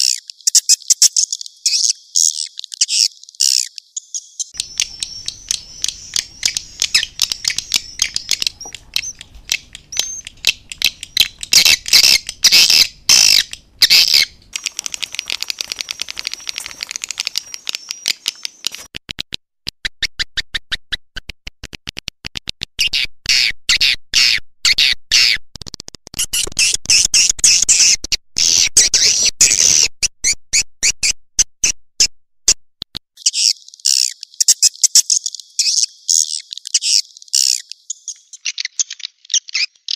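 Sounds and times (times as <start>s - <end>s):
swiftlets clicking and chirping: 0.0s - 19.0s.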